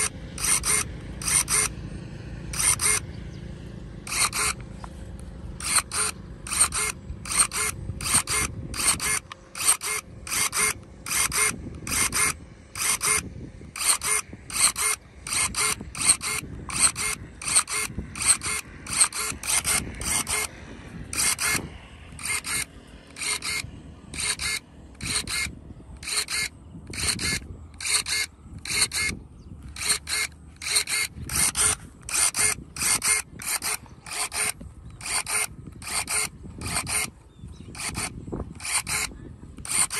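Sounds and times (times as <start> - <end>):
electric pruning shears snipping: 0.0 - 3.2, 4.0 - 39.9.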